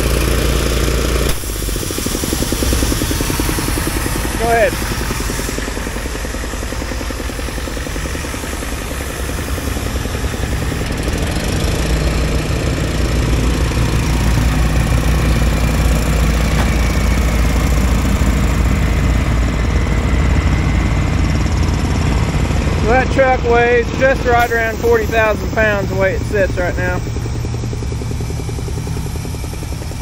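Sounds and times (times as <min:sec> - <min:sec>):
truck engine under load: 0:00.0 - 0:30.0.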